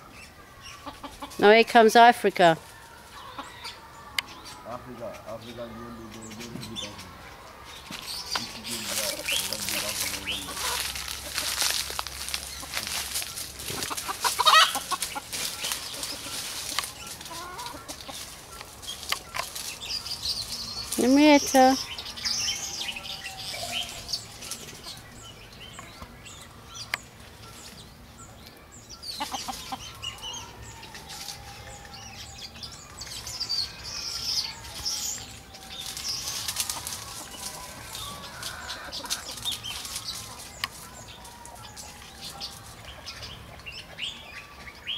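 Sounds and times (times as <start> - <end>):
chickens clucking: 0.0 - 44.9
small birds chirping: 0.0 - 44.9
rustling: 7.7 - 22.8, 34.6 - 42.8.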